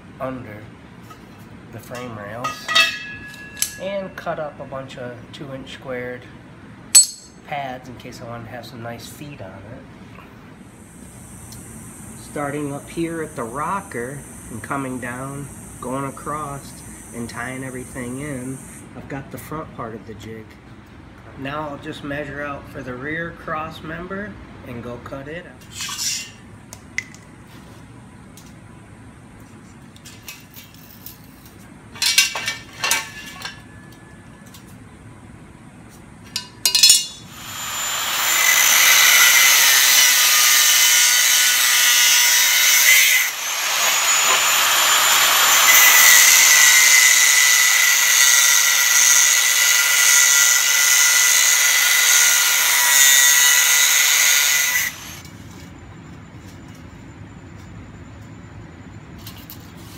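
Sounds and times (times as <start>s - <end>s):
angle grinder cutting steel tubing: 7.0s - 7.4s, 36.7s - 55.4s
sharp knocks of metal tubing: 7.0s - 7.4s.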